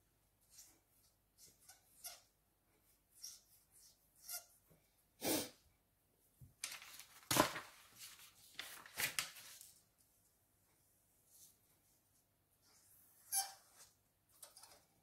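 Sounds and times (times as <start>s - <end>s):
paper rustling and sliding on table: 6.6s - 9.8s.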